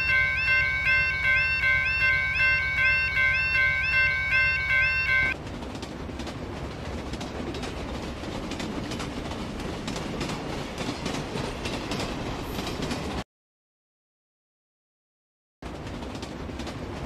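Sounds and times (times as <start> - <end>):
chiming jingle: 0.0 - 5.4
freight train rumbling past: 0.0 - 13.2, 15.6 - 17.0.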